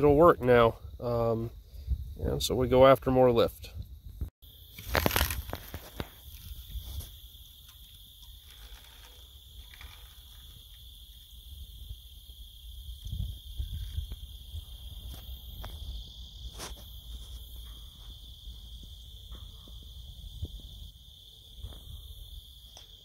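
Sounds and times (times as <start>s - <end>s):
high insect chorus: 0.0s - 23.0s
wind buffeting microphone: 0.8s - 2.5s, 11.4s - 16.4s.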